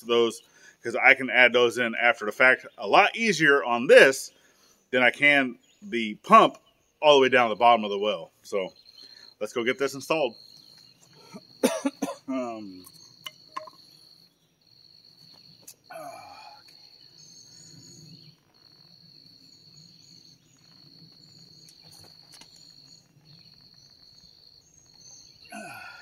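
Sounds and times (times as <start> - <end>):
insect trilling: 8.6 - 26.0
pipe fittings knocking and clicking: 13.2 - 13.8.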